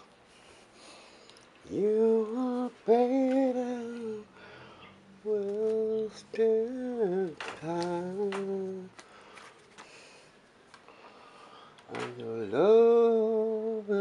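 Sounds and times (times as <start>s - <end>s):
person singing slowly: 1.6s - 4.4s, 5.2s - 9.0s, 11.9s - 14.0s.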